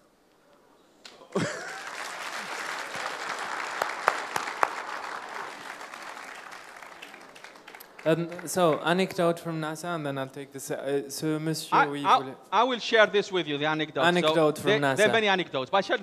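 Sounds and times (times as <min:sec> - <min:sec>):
audience applauding: 0:01.1 - 0:09.2.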